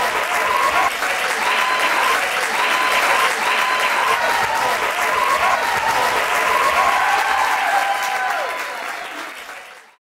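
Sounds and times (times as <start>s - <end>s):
audience applauding: 0.0s - 10.0s
high whoops: 3.6s - 9.0s.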